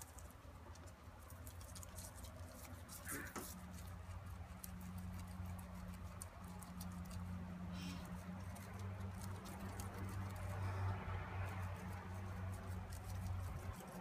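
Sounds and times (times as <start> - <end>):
guinea pig chewing hay: 0.0 - 14.0.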